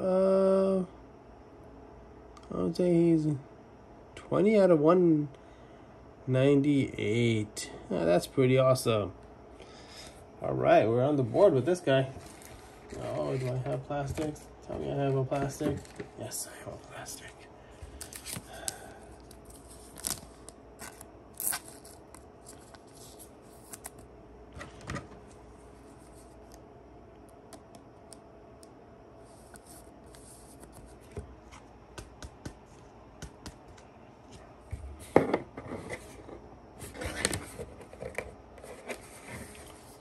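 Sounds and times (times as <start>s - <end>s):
scraping and rustling: 12.1s - 14.5s.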